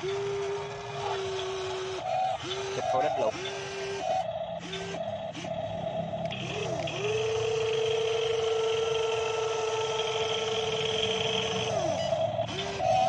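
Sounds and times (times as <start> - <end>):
electric motors whining: 0.0 - 13.0.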